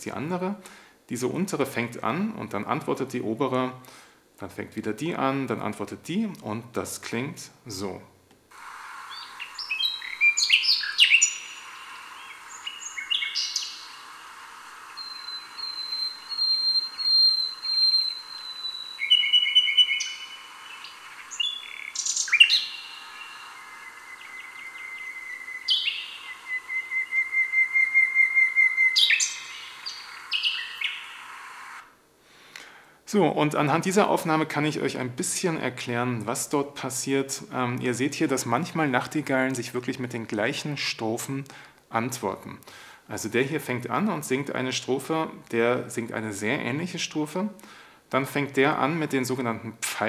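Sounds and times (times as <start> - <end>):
steady hiss: 0.0 - 50.0
nightingales singing: 9.0 - 31.8.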